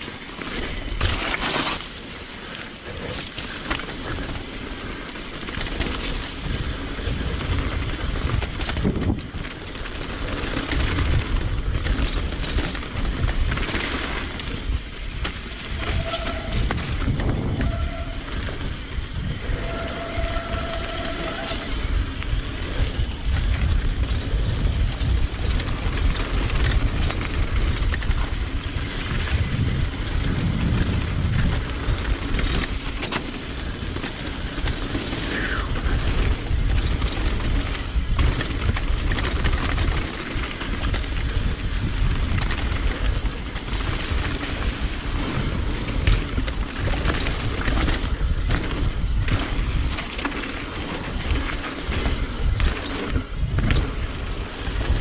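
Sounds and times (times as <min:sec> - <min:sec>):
bike tyres rumbling on dirt: 0:00.0 - 0:55.0
wind buffeting microphone: 0:03.9 - 0:55.0
bicycle brakes squealing: 0:13.8 - 0:24.6, 0:28.8 - 0:38.7, 0:43.8 - 0:55.0.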